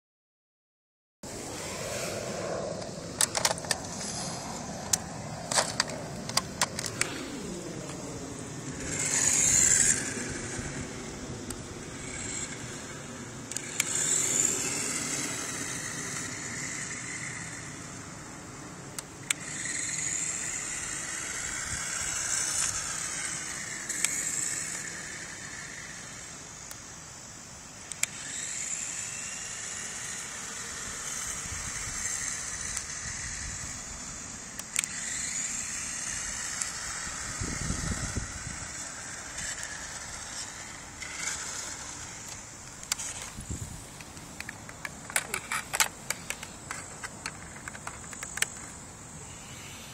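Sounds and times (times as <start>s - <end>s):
sharp clicks: 2.8s - 4.1s, 4.8s - 7.2s, 18.9s - 25.0s, 27.8s - 28.6s, 34.5s - 37.4s, 38.0s - 43.4s, 44.0s - 48.8s
toy buggy electric motor whining: 3.2s - 49.9s.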